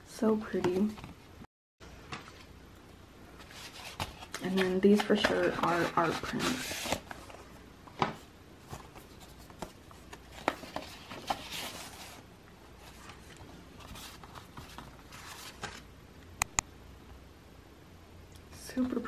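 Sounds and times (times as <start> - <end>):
packaging rustling: 8.6 - 12.2.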